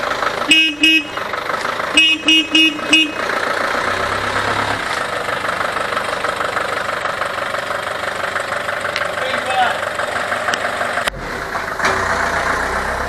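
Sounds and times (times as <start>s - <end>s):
engine running: 0.0s - 13.0s
bus horn toots: 0.5s - 1.3s, 1.9s - 3.4s.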